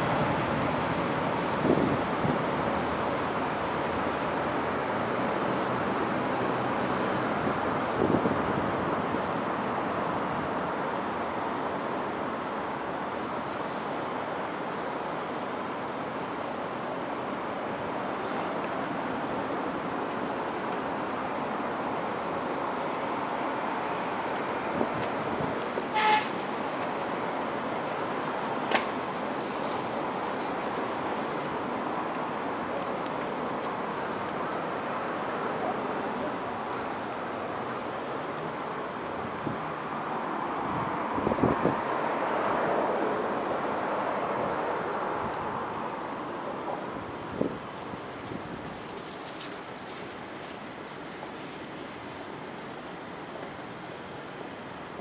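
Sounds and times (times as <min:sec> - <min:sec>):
urban traffic noise: 0:00.0 - 0:55.0
short horn toot: 0:25.8 - 0:26.4.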